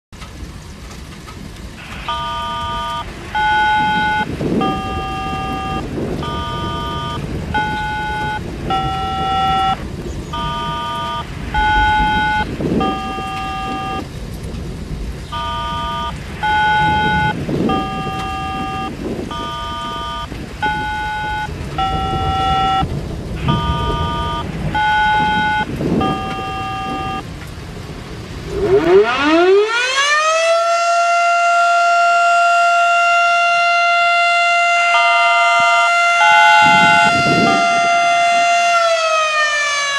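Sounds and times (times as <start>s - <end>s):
thunderstorm: 0.2s - 39.9s
outdoor warning siren wailing: 1.7s - 39.9s
steady electronic notes: 15.3s - 27.3s, 34.6s - 39.1s.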